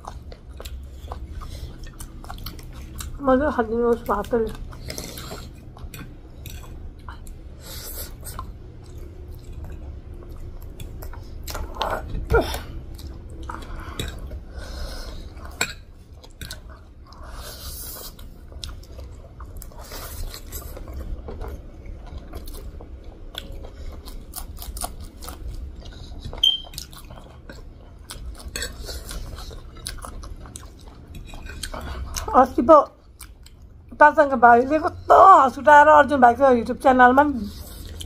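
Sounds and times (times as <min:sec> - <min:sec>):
wet chewing: 0:00.0 - 0:33.9, 0:37.4 - 0:38.0
brief high squeak: 0:26.4 - 0:26.7.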